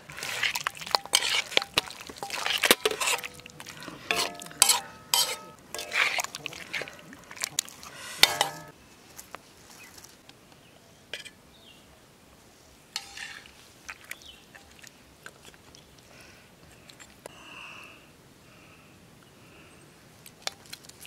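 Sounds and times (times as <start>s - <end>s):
metal cookware clanking: 0.9s - 7.0s, 7.8s - 8.7s.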